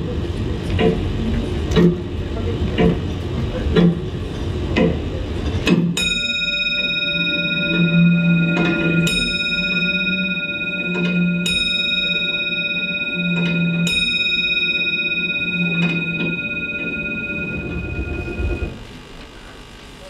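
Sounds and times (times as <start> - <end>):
bell-like metal instrument ringing: 6.0 - 18.8.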